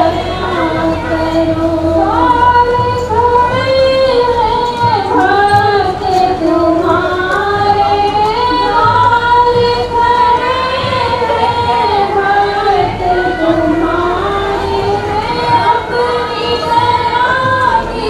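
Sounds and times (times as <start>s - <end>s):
woman singing devotional song: 0.0s - 18.0s.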